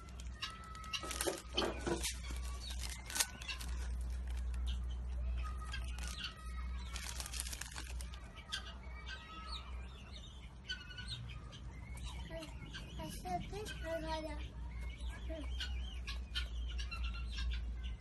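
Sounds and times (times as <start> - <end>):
plastic snack packet crinkling: 0.0 - 8.4
small birds chirping: 0.0 - 18.0.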